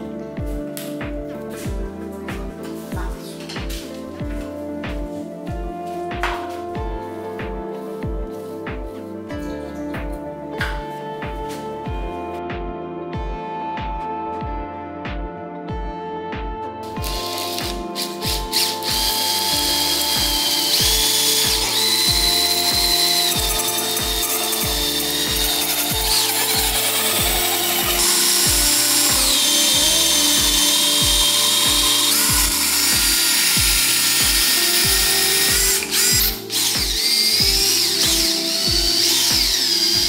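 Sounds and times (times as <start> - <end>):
background music with steady beat: 0.0 - 40.0
blades shaving wood: 17.0 - 40.0
power drill motor whining: 17.0 - 40.0.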